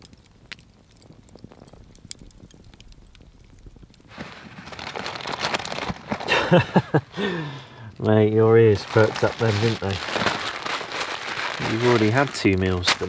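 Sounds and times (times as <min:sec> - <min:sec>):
campfire embers crackling: 0:00.0 - 0:13.0
rummaging through a backpack: 0:04.1 - 0:06.8, 0:08.7 - 0:13.0.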